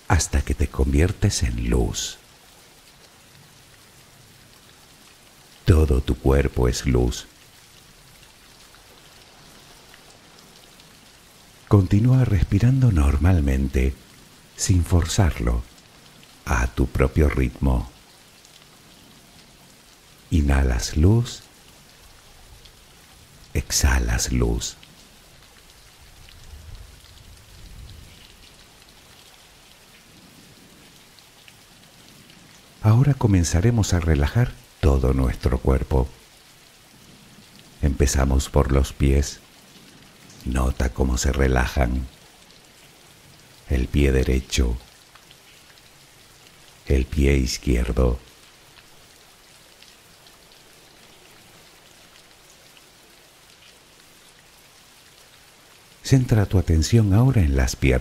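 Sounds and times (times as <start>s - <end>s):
steady rain falling: 0.0s - 58.0s
person narrating: 0.1s - 2.2s, 5.7s - 7.3s, 11.7s - 14.0s, 14.6s - 15.7s, 16.5s - 18.0s, 20.3s - 21.5s, 23.6s - 24.8s, 32.8s - 36.2s, 37.8s - 39.4s, 40.4s - 42.1s, 43.7s - 44.8s, 46.9s - 48.3s, 56.0s - 58.0s.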